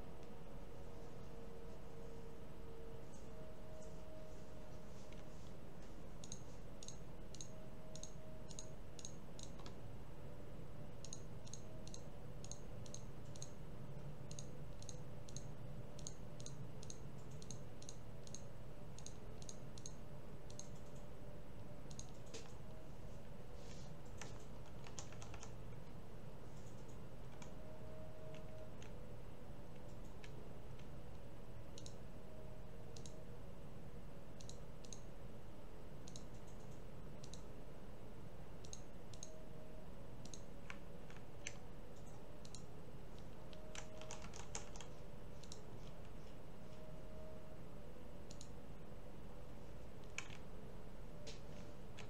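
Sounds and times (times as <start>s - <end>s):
steady low hum: 0.0s - 52.0s
computer mouse clicking: 5.0s - 9.8s, 11.0s - 22.8s, 23.8s - 29.1s, 29.7s - 32.1s, 32.9s - 33.3s, 34.3s - 35.1s, 36.0s - 37.5s, 38.6s - 39.5s, 40.2s - 46.4s, 48.2s - 48.6s, 50.0s - 50.5s.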